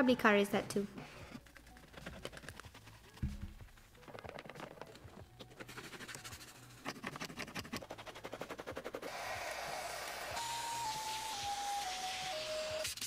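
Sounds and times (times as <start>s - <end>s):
brush scrubbing: 1.4s - 10.2s.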